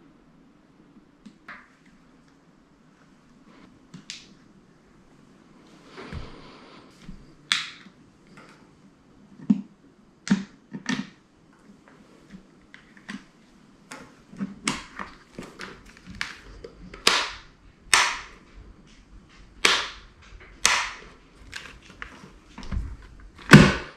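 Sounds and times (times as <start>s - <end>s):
plastic packaging crackling: 12.8s - 18.5s, 19.3s - 23.6s.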